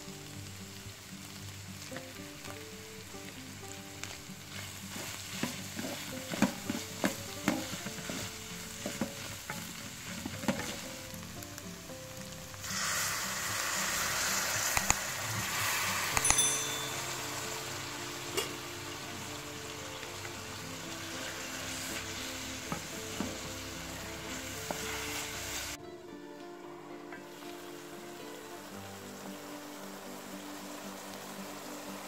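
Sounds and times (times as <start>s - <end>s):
meat frying in a pot: 0.0s - 25.8s, 27.1s - 32.0s
loud hissing sizzle: 0.0s - 32.0s
wooden spoon scraping pot: 4.5s - 10.8s
water poured into pot: 12.6s - 17.7s.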